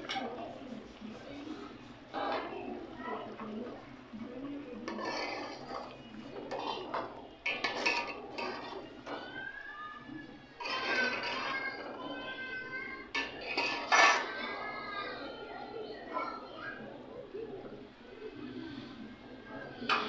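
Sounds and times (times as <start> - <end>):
metal spoon scraping a pot: 4.7 - 9.3, 10.5 - 11.9, 13.1 - 14.6.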